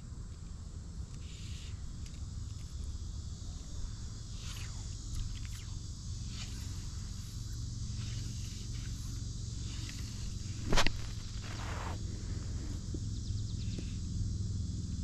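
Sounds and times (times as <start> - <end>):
insect chorus: 0.0 - 15.0
fly line swishing: 1.2 - 12.9
low rumble: 5.9 - 14.8.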